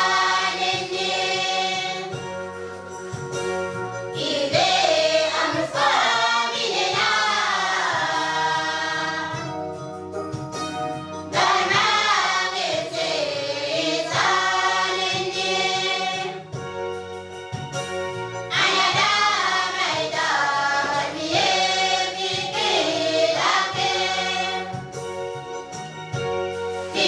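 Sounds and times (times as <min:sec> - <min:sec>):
choir of women singing: 0:00.0 - 0:02.2, 0:04.2 - 0:09.6, 0:11.3 - 0:16.6, 0:18.5 - 0:24.9.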